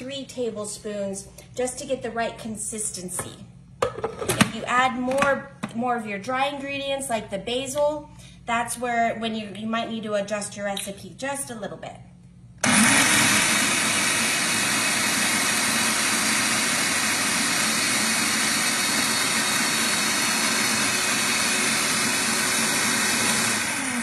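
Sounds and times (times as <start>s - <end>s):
food processor whirring: 12.6s - 24.0s.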